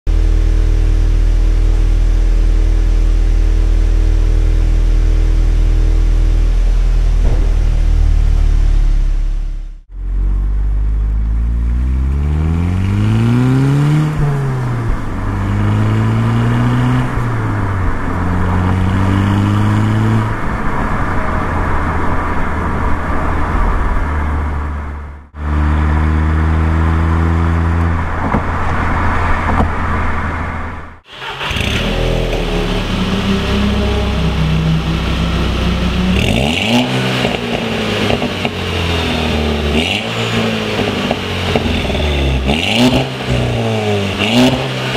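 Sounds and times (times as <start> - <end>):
car engine idling and revving: 0.1 - 44.9
car engine accelerating through gears: 7.0 - 20.5, 31.2 - 44.9.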